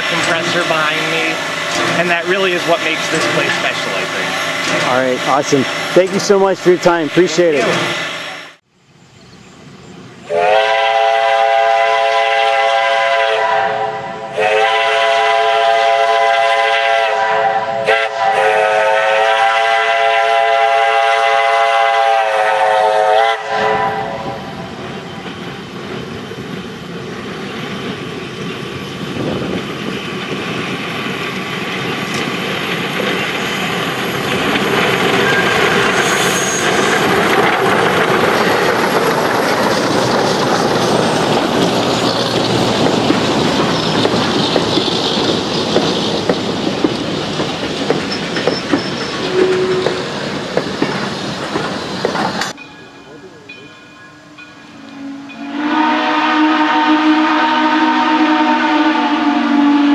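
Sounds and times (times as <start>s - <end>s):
train wheels on rails: 0.0s - 8.7s, 9.5s - 59.9s
steam whistle blasts: 10.3s - 24.5s, 35.3s - 36.9s, 49.3s - 50.0s, 54.2s - 59.9s.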